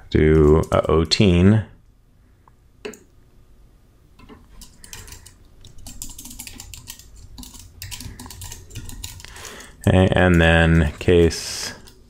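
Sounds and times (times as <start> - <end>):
low steady hum: 0.0 - 12.0
keyboard and mouse clicking: 4.2 - 11.0.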